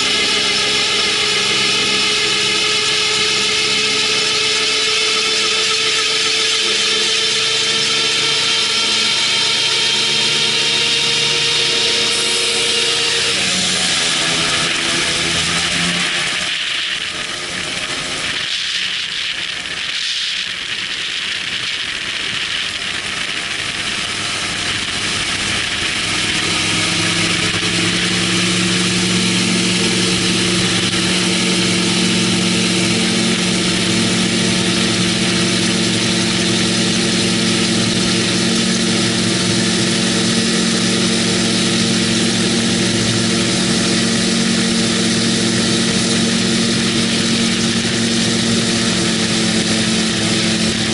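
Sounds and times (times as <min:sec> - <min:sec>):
engine and propeller drone: 0:00.0 - 0:50.9.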